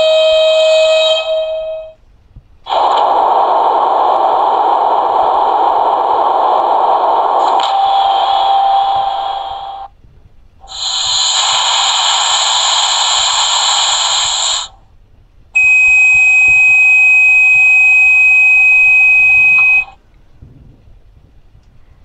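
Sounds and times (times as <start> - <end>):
rushing hiss noise: 2.6 - 9.9, 10.6 - 14.8
high-pitched warning tone: 7.4 - 9.9, 10.6 - 14.8, 15.6 - 20.0.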